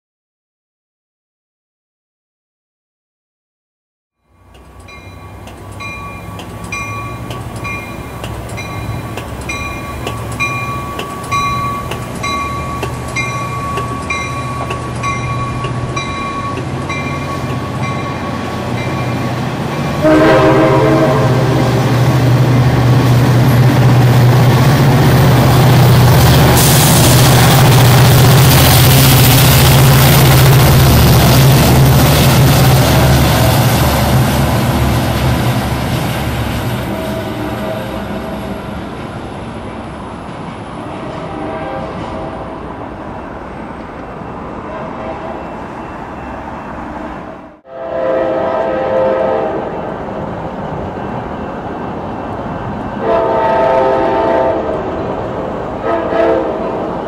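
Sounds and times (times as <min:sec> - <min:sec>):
railroad crossing bell ringing: 0:04.2 - 0:21.7
rumble of passing train: 0:04.2 - 0:57.0
train horn: 0:19.8 - 0:22.4, 0:36.8 - 0:38.6, 0:40.8 - 0:42.8, 0:44.6 - 0:45.6, 0:47.6 - 0:49.8, 0:53.0 - 0:54.9, 0:55.8 - 0:57.0.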